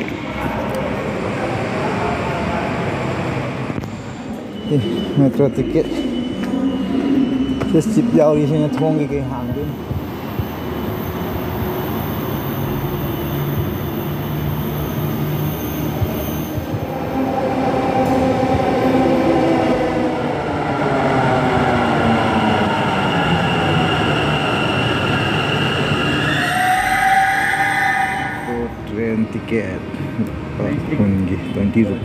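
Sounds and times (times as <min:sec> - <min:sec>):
steel wheels rumbling on rails: 0:05.9 - 0:31.6.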